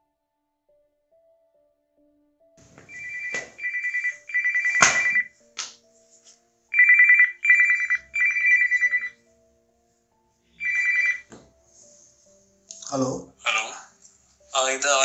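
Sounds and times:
trilling phone ringtone: 2.8 - 5.4, 6.7 - 9.2, 10.6 - 11.3.

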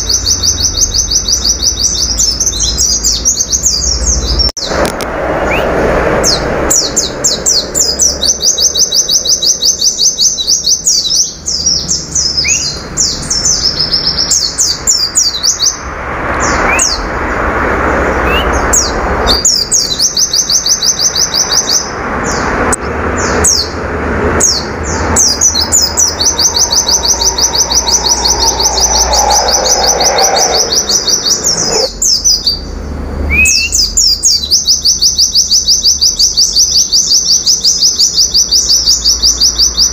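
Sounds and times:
bird singing high trills: 5.4 - 15.8, 18.2 - 22.4, 24.4 - 32.7.

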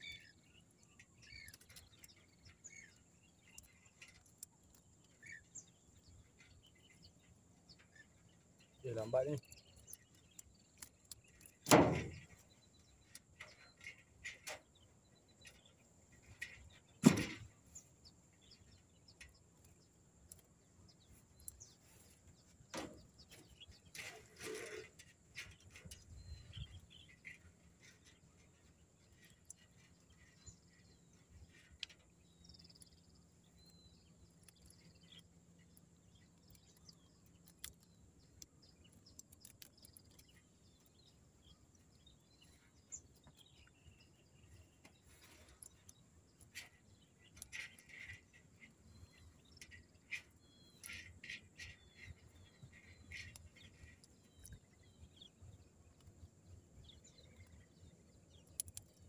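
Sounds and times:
birds chirping: 0.0 - 59.0
small clicks and handling noises: 0.9 - 17.5, 31.4 - 55.3, 55.9 - 59.0.

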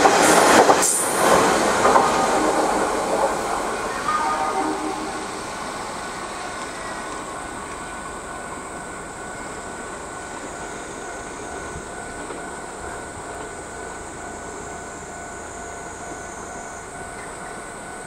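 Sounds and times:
electric train running: 0.0 - 18.0
faint high train whine: 0.0 - 18.0.

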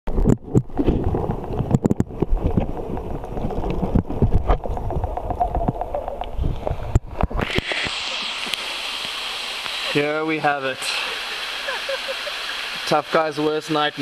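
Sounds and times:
muffled underwater rumble: 0.1 - 8.5
stream water rushing: 1.0 - 14.0.

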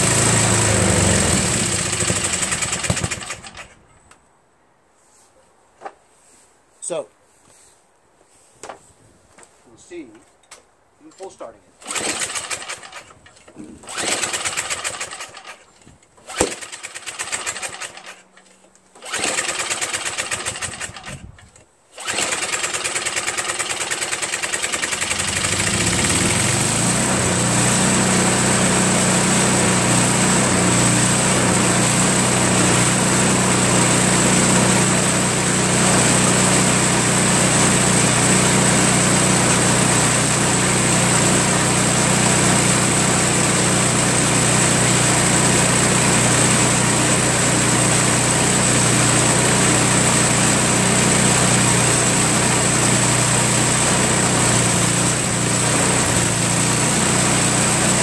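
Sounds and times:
small engine running: 0.0 - 3.8, 11.8 - 13.2, 13.8 - 15.6, 16.3 - 18.2, 19.0 - 21.3, 22.0 - 58.0
recoil starter pulls: 0.1 - 3.8, 11.1 - 27.1.

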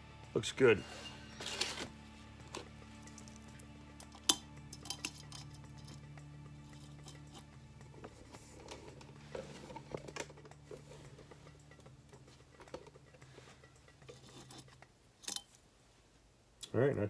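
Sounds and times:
metal parts clicking and rubbing: 2.5 - 15.6.

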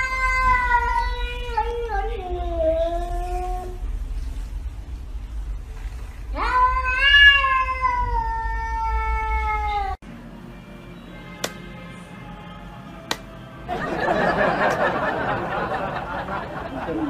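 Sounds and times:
cat meowing long: 0.0 - 3.8, 6.3 - 10.0.

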